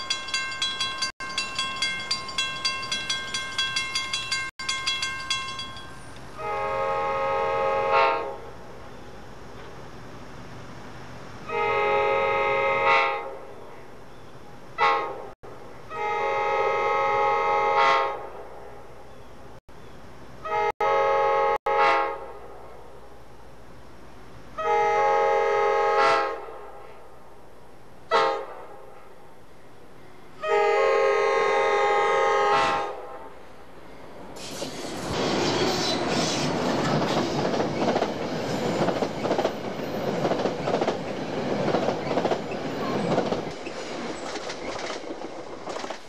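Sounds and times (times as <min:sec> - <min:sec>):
train air horn blasts: 0:06.4 - 0:08.6, 0:11.4 - 0:13.5, 0:14.8 - 0:18.6, 0:20.4 - 0:22.7, 0:24.6 - 0:27.1, 0:28.1 - 0:29.2, 0:30.4 - 0:33.5.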